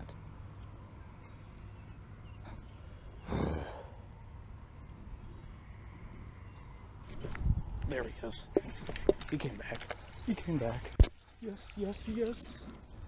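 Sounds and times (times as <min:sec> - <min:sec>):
person sighing heavily: 0:03.2 - 0:04.0
wind rumble on microphone: 0:04.7 - 0:09.3.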